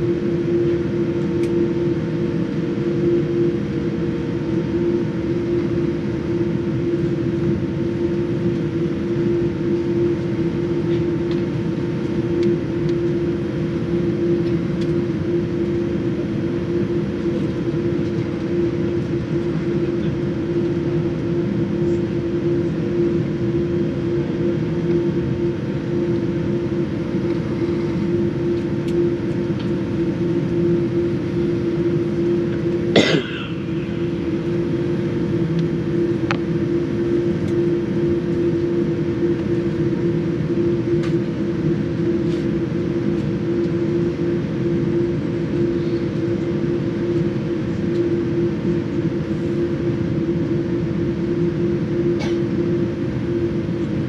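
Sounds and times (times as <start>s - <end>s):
aircraft cabin rumble: 0.2s - 54.0s.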